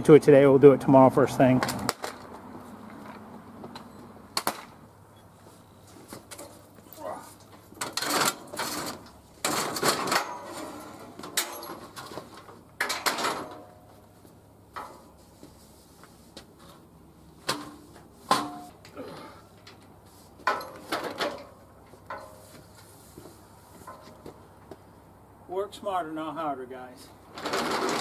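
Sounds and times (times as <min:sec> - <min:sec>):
metal tubing knocks and clanks: 0:17.5 - 0:19.0, 0:20.4 - 0:22.4.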